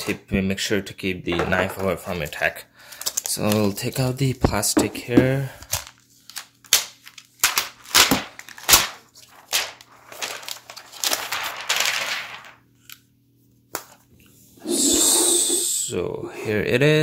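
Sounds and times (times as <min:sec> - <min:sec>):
plastic film peeling crackle: 0:05.6 - 0:13.0.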